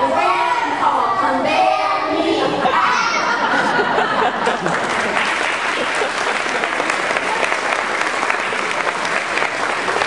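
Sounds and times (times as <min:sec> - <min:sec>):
children singing: 0:00.0 - 0:03.9
audience chatter: 0:00.0 - 0:10.0
audience laughing: 0:02.3 - 0:07.4
audience clapping: 0:04.3 - 0:10.0.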